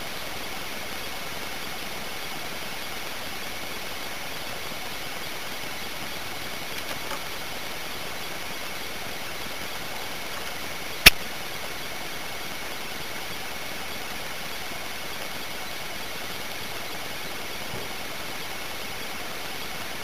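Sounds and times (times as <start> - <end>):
sharp click: 11.0 - 11.3.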